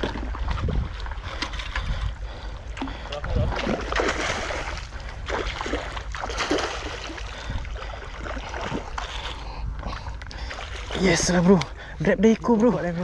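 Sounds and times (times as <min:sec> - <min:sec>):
person wading: 0:00.0 - 0:13.0
seawater splashing and sloshing: 0:00.0 - 0:13.0
wind rumbling on microphone: 0:00.0 - 0:13.0.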